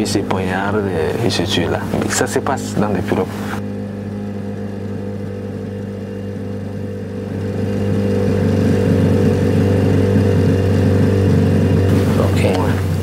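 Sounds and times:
motorboat engine humming: 0.0s - 13.0s.

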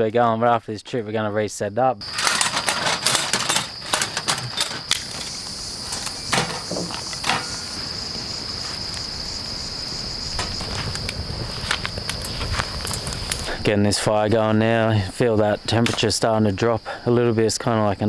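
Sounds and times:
insects chirring: 1.7s - 18.0s
camp gear knocking and clattering: 2.0s - 8.1s, 10.3s - 13.5s.

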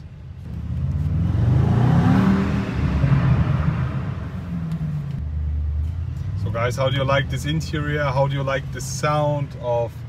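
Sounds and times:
car engine accelerating: 0.4s - 7.8s.

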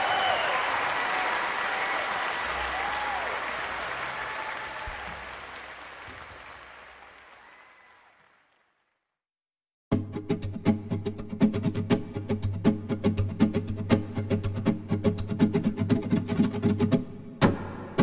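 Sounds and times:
people cheering: 0.0s - 8.9s
audience applause: 0.0s - 9.0s.

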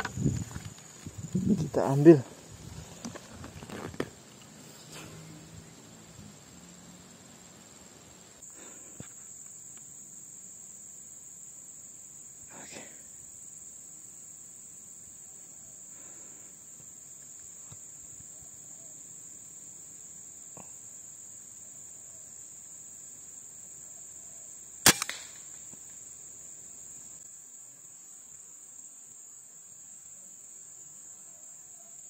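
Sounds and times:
high-pitched insect drone: 0.0s - 27.3s
air rifle shot: 24.8s - 25.5s.

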